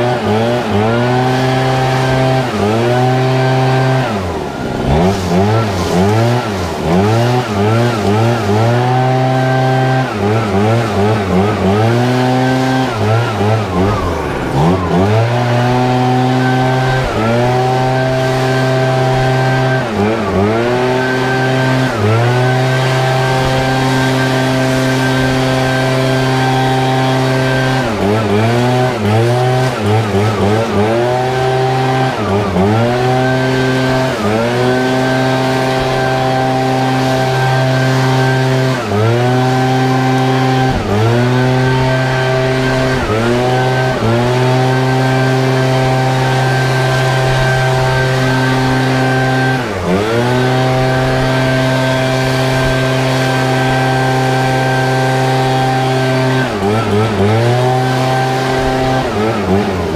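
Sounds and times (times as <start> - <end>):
leaf blower engine revving: 0.0 - 59.9.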